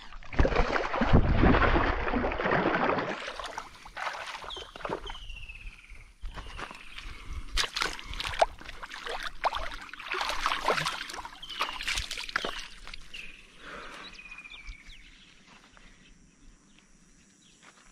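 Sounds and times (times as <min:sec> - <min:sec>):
fish splashing in water: 0:00.0 - 0:05.2, 0:07.6 - 0:13.1.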